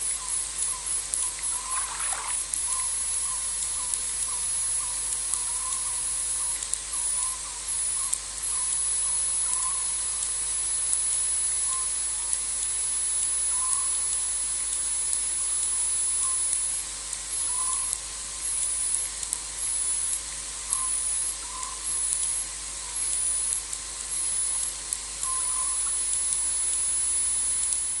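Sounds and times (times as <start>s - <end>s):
insect chorus hissing: 0.0s - 10.1s, 11.4s - 12.0s, 13.5s - 14.1s, 15.5s - 19.1s, 19.7s - 23.6s, 24.2s - 27.1s
faint short insect chirps: 0.1s - 10.0s, 13.4s - 14.1s, 15.6s - 18.7s, 20.7s - 23.6s, 24.2s - 27.8s.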